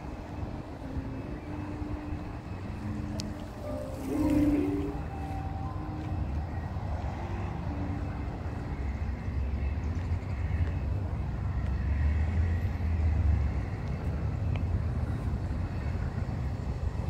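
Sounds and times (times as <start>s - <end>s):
steady low outdoor rumble: 0.0s - 17.0s.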